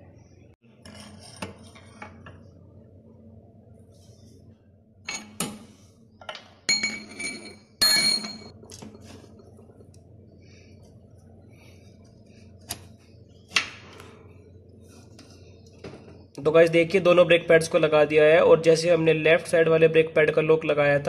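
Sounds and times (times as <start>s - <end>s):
metallic clinks and scrapes: 6.7s - 8.5s.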